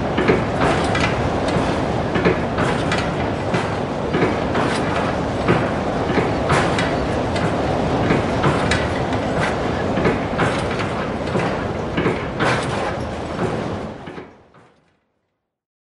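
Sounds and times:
mechanical rumble and rattle: 0.0s - 15.2s.

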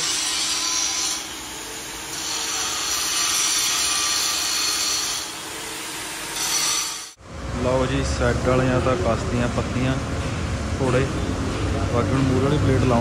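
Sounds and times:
angle grinder cutting steel: 0.0s - 7.2s.

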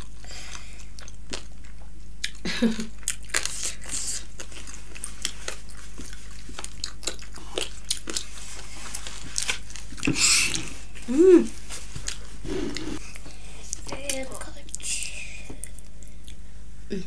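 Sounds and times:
crunchy bites and chewing: 3.0s - 8.3s, 8.9s - 10.7s
person humming: 10.5s - 11.6s
breathy noise: 12.4s - 13.7s.

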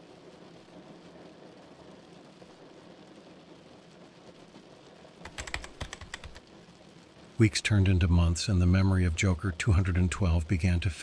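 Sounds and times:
faint low background ambience: 0.0s - 11.0s
keyboard typing clicks: 5.2s - 6.4s.

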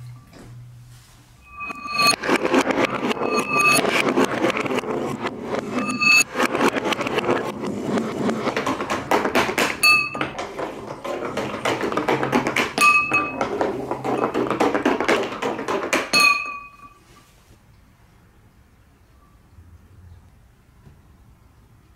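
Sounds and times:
ball striking glass bowl ringing: 1.4s - 3.8s, 9.5s - 17.0s
balls clattering down plastic track: 6.2s - 16.8s.

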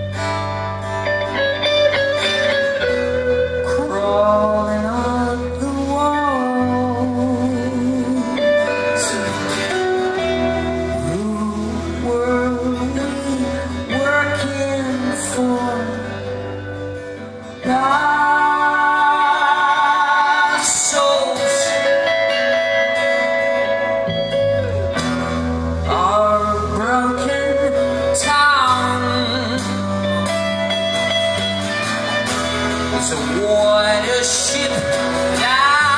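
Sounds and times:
live rock band playing: 0.0s - 35.9s.

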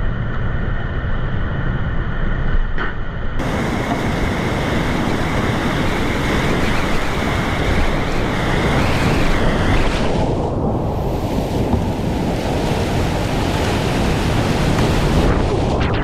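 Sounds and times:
river whitewater rushing: 3.4s - 10.2s, 11.0s - 15.5s.

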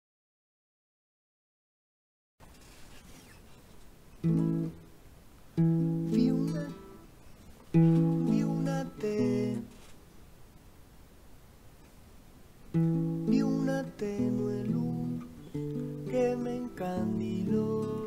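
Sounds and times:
faint hiss: 2.4s - 18.0s
acoustic guitar strummed chords: 4.2s - 4.9s, 5.6s - 7.1s, 7.7s - 9.7s, 12.7s - 18.0s.

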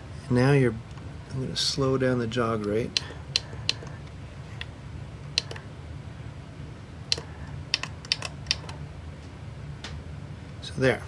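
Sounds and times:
steady low hum: 0.0s - 11.0s
sharp key clicks: 7.1s - 8.8s.

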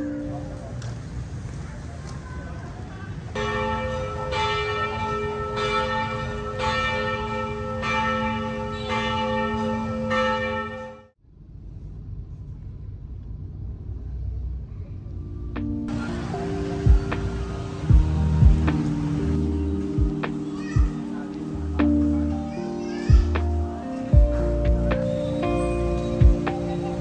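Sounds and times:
large bell ringing: 3.4s - 11.1s.

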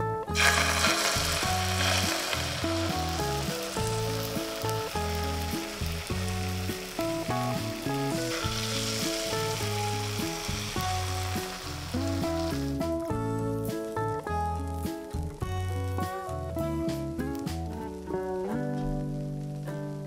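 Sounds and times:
background music: 0.0s - 20.0s
egg sizzling in frying pan: 0.3s - 14.0s.

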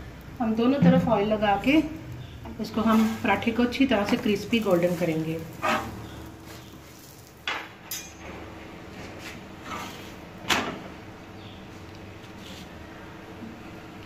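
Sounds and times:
metal spatula clinking on griddle: 7.9s - 8.2s.

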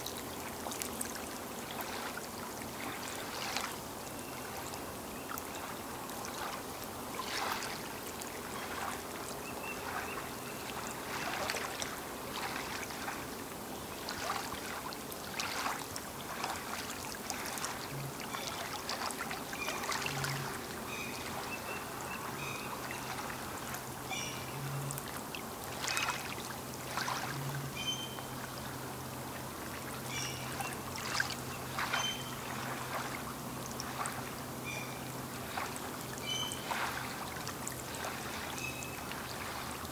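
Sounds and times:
lake waves lapping on shore: 0.0s - 39.9s.

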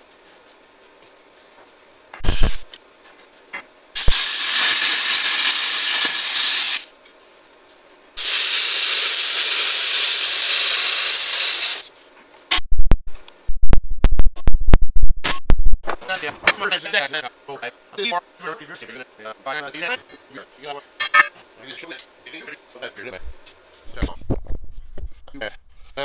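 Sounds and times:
cutting torch hissing: 2.2s - 2.7s, 4.0s - 6.9s, 8.2s - 11.9s.

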